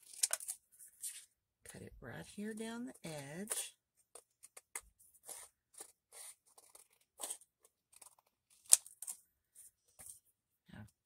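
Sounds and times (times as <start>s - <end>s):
scissors snipping paper: 4.4s - 9.2s.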